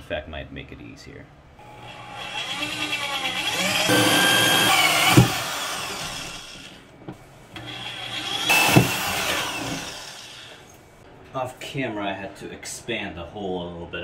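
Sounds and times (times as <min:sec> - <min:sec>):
power drill with hole saw: 0:01.6 - 0:06.8, 0:07.6 - 0:10.7.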